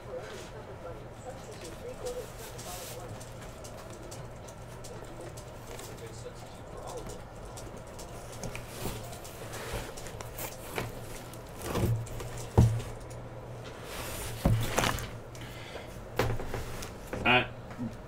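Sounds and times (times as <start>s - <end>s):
cardboard scraping: 8.4s - 13.0s, 13.8s - 15.2s
boxes thumping down: 14.3s - 15.2s.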